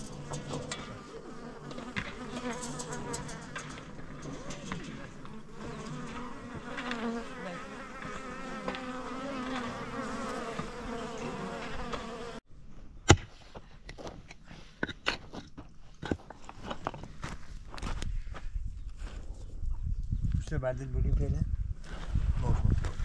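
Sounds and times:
insects buzzing: 0.0s - 12.4s.

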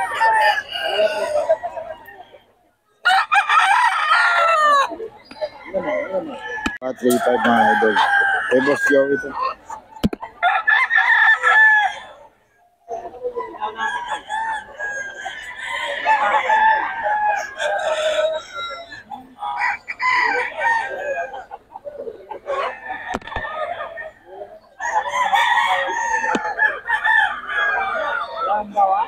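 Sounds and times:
roosters crowing: 0.0s - 2.4s, 3.0s - 12.6s, 13.4s - 29.0s.

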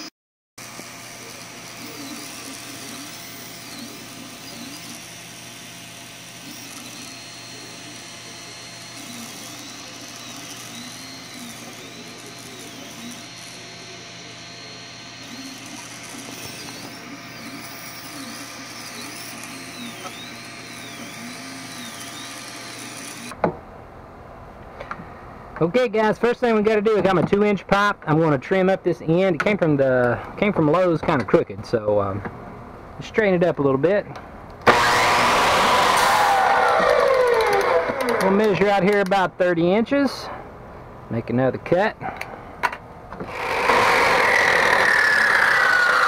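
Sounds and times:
stepper motors whining: 0.0s - 23.4s, 34.6s - 39.1s, 43.2s - 46.0s
cooling fans whirring: 0.6s - 46.0s.

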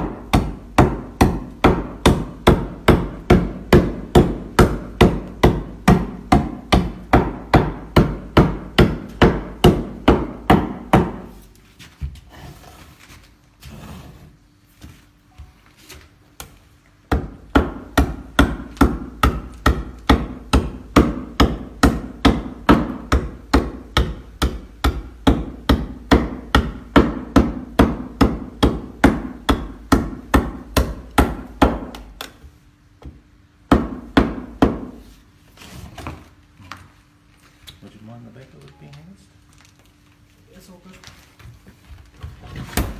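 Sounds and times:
hand adze chopping wood: 0.0s - 11.3s, 17.1s - 32.3s.

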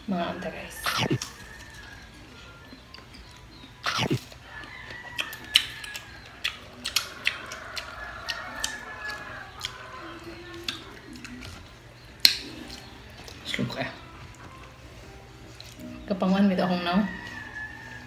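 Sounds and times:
crunching mango slices: 0.8s - 13.6s
lip smacks while chewing: 5.1s - 9.8s.

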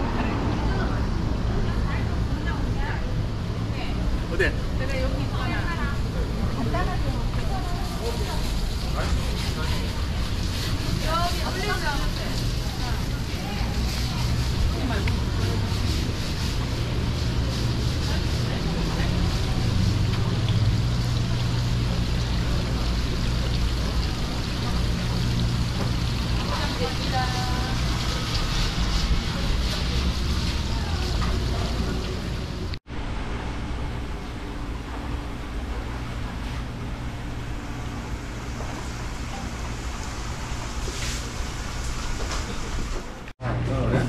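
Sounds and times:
low pump hum: 0.0s - 44.0s
trickling water: 3.3s - 32.8s, 33.8s - 43.2s.

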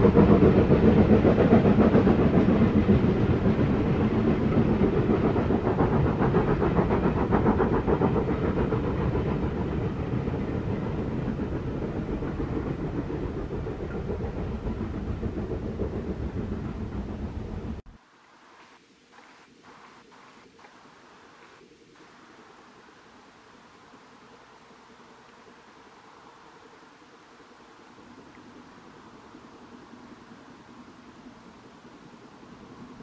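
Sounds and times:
steam locomotive exhaust beats: 0.0s - 17.9s.

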